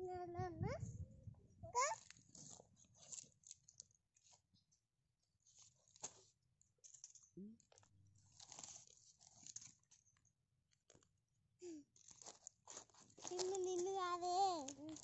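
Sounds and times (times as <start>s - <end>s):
child's voice: 0.0s - 1.0s, 1.6s - 2.0s, 13.3s - 15.0s
corn husks ripping: 8.3s - 9.7s.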